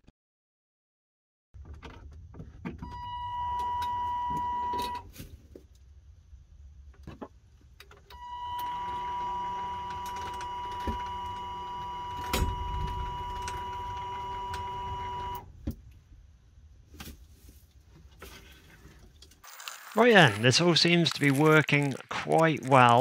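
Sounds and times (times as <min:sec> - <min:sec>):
wiper motor whining: 0:08.2 - 0:15.4.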